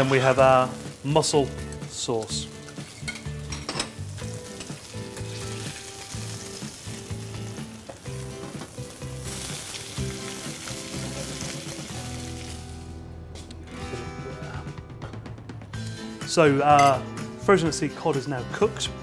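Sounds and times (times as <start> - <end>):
fish frying in oil: 4.2 - 12.7.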